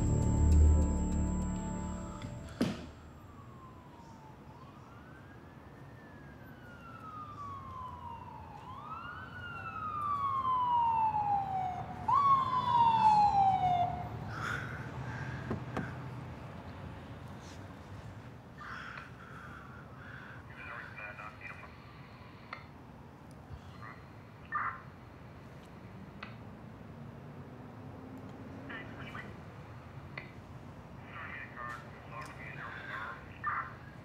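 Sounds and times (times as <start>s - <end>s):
police siren wailing: 0.0s - 14.3s.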